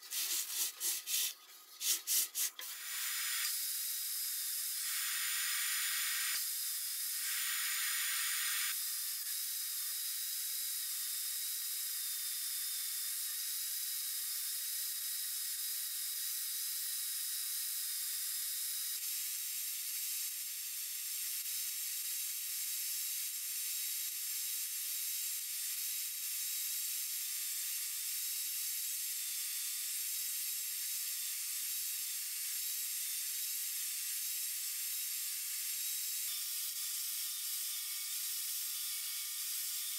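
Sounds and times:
table saw cutting wood: 0:36.3 - 0:39.9.

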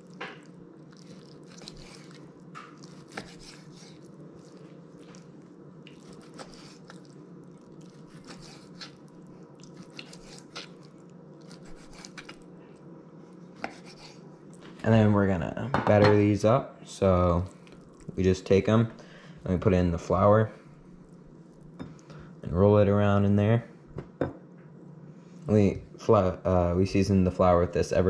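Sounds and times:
faint steady hum: 0:00.0 - 0:28.0
knife cutting fish on cutting board: 0:02.9 - 0:03.9, 0:08.1 - 0:08.9, 0:11.5 - 0:12.3, 0:13.6 - 0:14.2.

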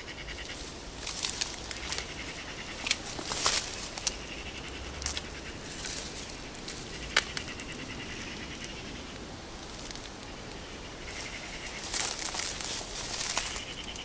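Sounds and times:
leaves and stems rustling: 0:00.0 - 0:14.0
twigs snapping: 0:01.0 - 0:04.2, 0:05.0 - 0:07.7, 0:11.8 - 0:14.0.

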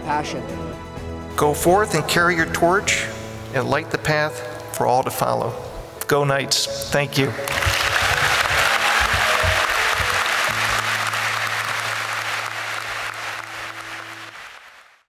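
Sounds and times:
background music: 0:00.0 - 0:15.0
large audience applauding: 0:07.4 - 0:15.0.

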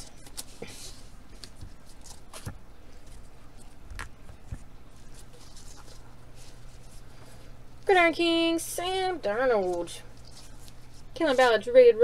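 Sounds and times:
crinkly rustles: 0:00.0 - 0:07.4, 0:09.6 - 0:11.7
steady low hum: 0:00.0 - 0:12.0.

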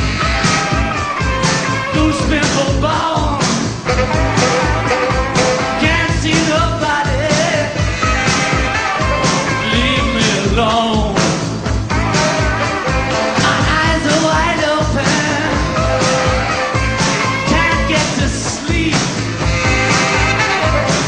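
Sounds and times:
rock band playing live: 0:00.0 - 0:21.0
man singing lead vocal: 0:01.9 - 0:03.9, 0:05.6 - 0:11.6, 0:13.3 - 0:16.5, 0:17.4 - 0:19.5.

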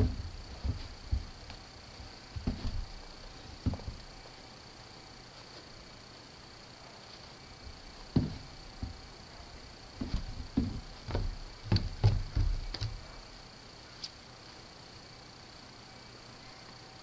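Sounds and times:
footsteps on wooden steps: 0:00.0 - 0:04.3, 0:07.1 - 0:13.4.

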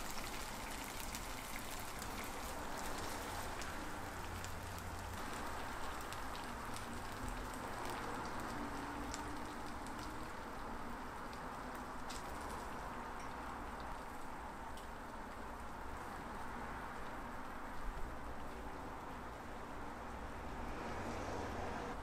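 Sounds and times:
food sizzling in frying pan: 0:00.0 - 0:19.1.

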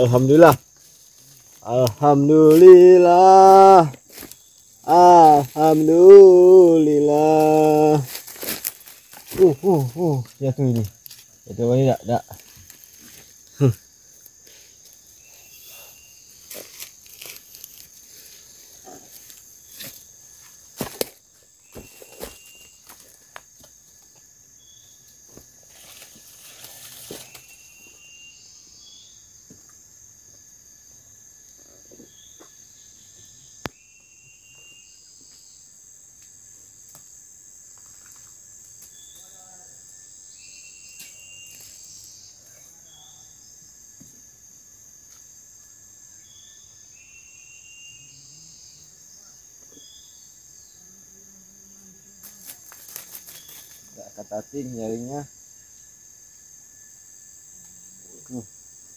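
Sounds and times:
insects droning: 0:00.0 - 0:58.9
rustling: 0:07.4 - 0:11.3, 0:52.2 - 0:53.9.

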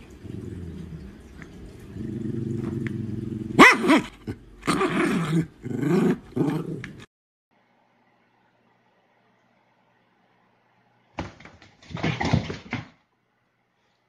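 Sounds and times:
dog growling: 0:00.0 - 0:07.1
dog barking: 0:03.6 - 0:04.2.

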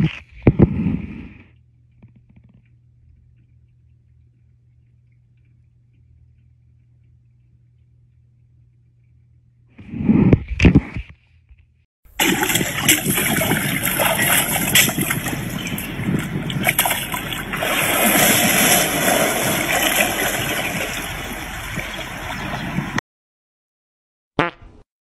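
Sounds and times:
water splashing and churning: 0:12.1 - 0:23.0.

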